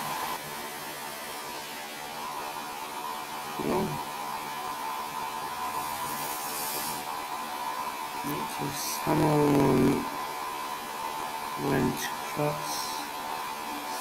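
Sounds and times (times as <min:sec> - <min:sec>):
hiss: 0:00.0 - 0:14.0
electric hum: 0:08.2 - 0:10.2.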